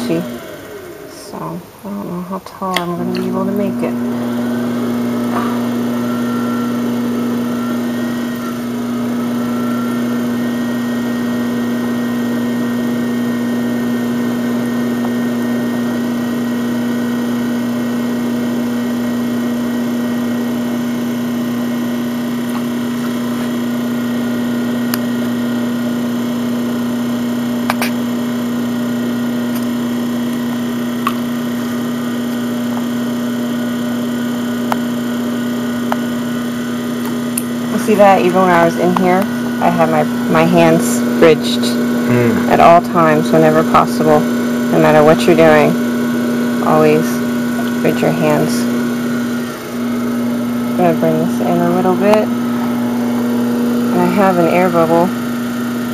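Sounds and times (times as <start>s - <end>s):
pottery wheel motor hum: 0.0s - 55.9s.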